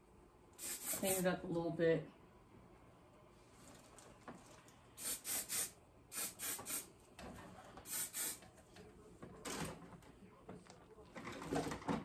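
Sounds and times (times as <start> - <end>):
spray bottle hissing: 0.6 - 1.2, 5.0 - 6.9, 7.9 - 8.4.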